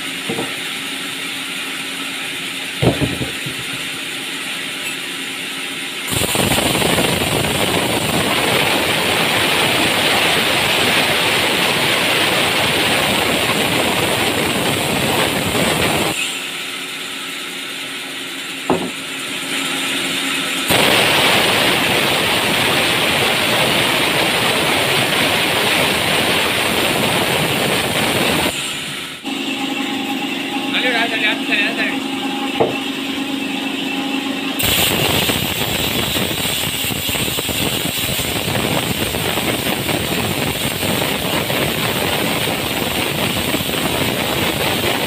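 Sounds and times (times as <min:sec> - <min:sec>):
sharp knock: 0:02.8 - 0:03.7, 0:18.7 - 0:19.0, 0:32.6 - 0:32.8
band saw cutting through log: 0:08.2 - 0:17.2, 0:18.5 - 0:32.9.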